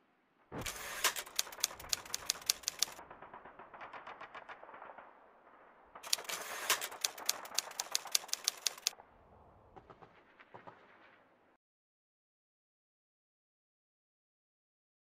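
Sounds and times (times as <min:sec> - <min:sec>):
typewriter keys clacking: 0:00.7 - 0:03.0, 0:06.1 - 0:08.9.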